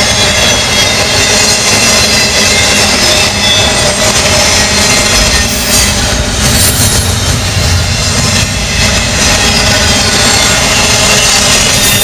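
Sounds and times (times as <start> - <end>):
train wheels on rails: 0.0 - 12.0.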